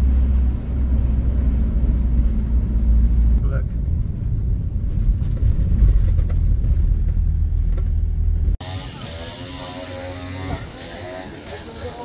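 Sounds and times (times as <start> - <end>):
car cabin engine and tyre rumble: 0.0 - 8.6.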